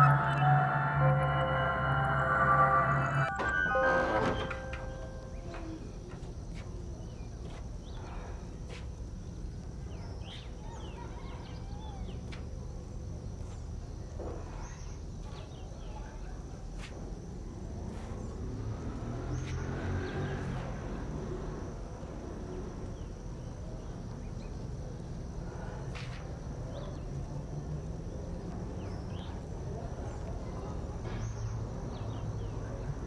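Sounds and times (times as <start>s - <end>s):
insect drone: 0.0s - 33.0s.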